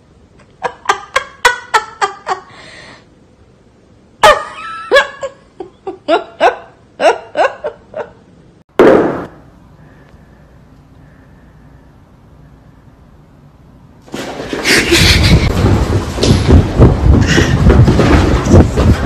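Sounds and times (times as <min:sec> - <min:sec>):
person giggling: 0:00.4 - 0:02.5, 0:04.2 - 0:08.2, 0:14.6 - 0:15.6.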